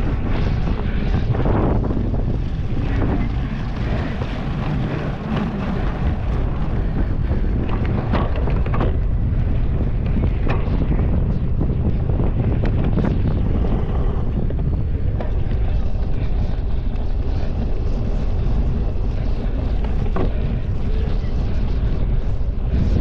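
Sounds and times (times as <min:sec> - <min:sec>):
wind buffeting microphone: 0:00.0 - 0:23.0
bike knocks and rattles: 0:03.8 - 0:11.0.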